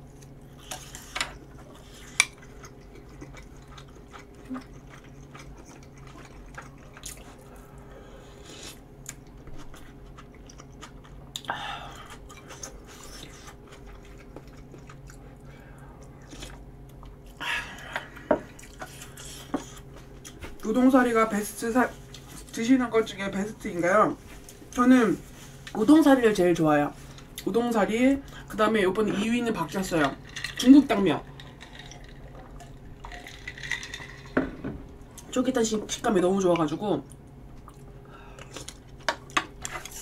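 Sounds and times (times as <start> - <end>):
faint steady hum: 0.0 - 40.0
person chewing: 0.1 - 20.4, 37.1 - 40.0.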